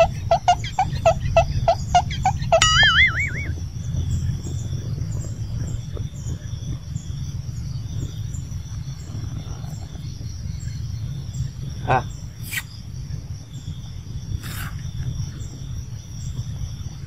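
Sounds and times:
faint high chirps: 0.0s - 4.2s
low rumble: 0.3s - 17.0s
wavering whistle-like tone: 2.6s - 3.6s.

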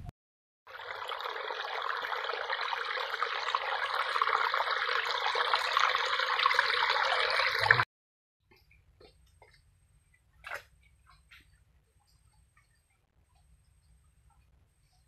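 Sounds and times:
shallow water trickling: 0.7s - 7.8s.

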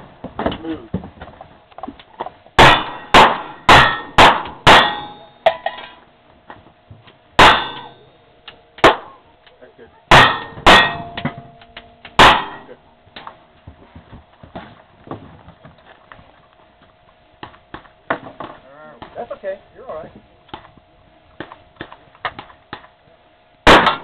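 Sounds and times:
steel targets ringing: 2.6s - 6.0s, 7.4s - 8.2s, 10.1s - 12.8s
revolver gunshots: 23.6s - 24.0s.

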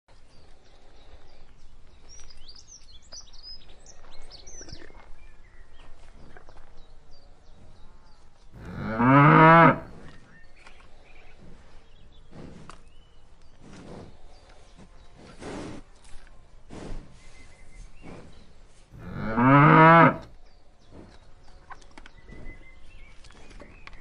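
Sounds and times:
cow mooing: 8.6s - 10.0s, 19.0s - 20.3s.

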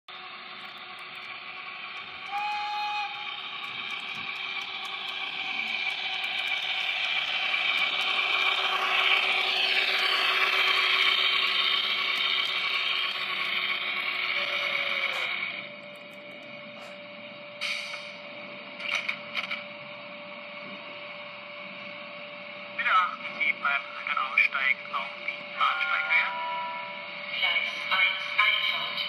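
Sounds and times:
wheels rolling on rails: 0.1s - 17.0s
model train motor whining: 0.1s - 19.6s, 22.8s - 29.0s
steady hum with held tone: 0.1s - 29.0s.

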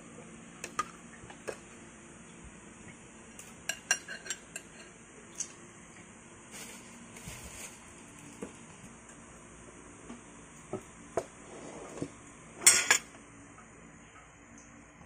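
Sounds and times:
cutlery and dishes clinking: 3.7s - 4.9s, 12.6s - 13.1s.

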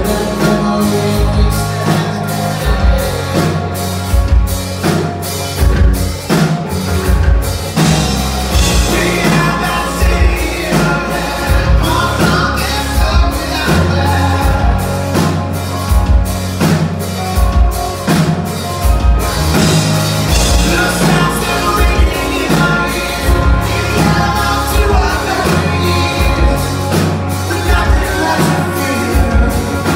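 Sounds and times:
man singing: 0.0s - 4.5s, 8.5s - 15.9s, 20.3s - 29.9s
distorted electric guitars: 0.0s - 29.9s
drum kit beat: 0.0s - 29.9s
electric bass: 0.0s - 29.9s.

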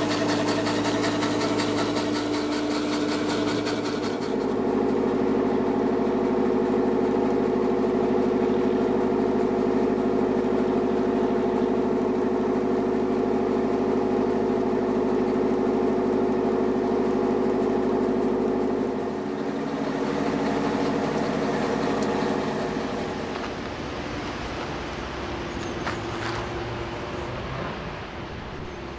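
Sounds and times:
boat engine running: 0.0s - 28.9s
conveyor mechanical hum: 0.0s - 28.9s.

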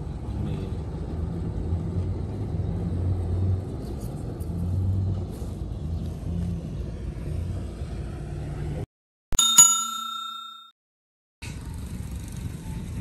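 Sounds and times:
bell ding: 9.4s - 10.8s
low outdoor rumble: 11.4s - 13.0s.

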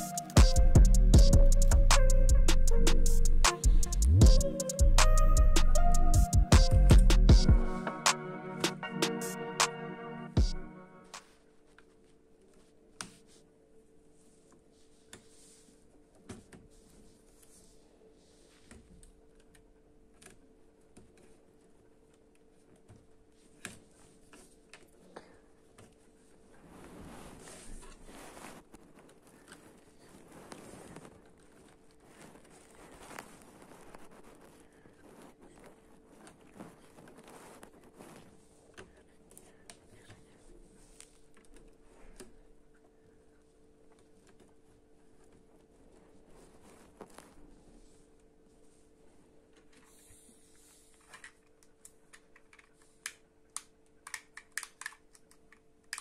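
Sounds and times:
plastic blocks clicking together: 51.8s - 56.0s.

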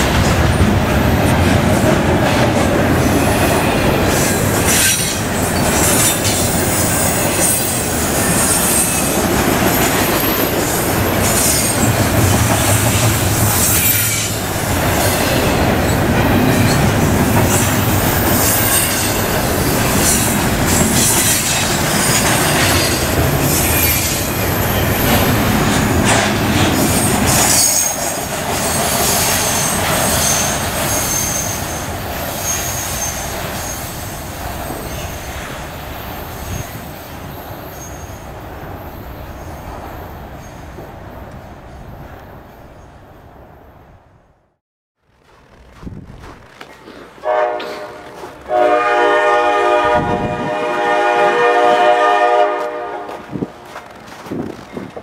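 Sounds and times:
train wheels rumbling on rail: 0.0s - 42.4s, 45.2s - 55.0s
high wheel squeals: 26.9s - 34.0s, 36.0s - 38.2s.

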